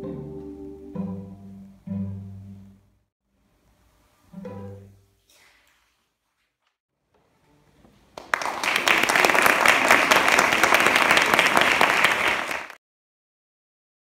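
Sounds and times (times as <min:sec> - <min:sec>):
audience applauding: 0:08.2 - 0:12.8.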